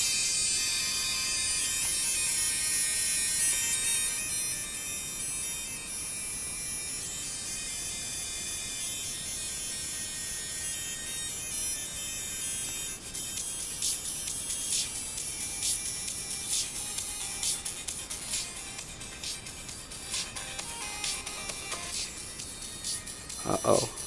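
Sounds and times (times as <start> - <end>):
tinny chiptune music from headphones: 0.0 - 24.0.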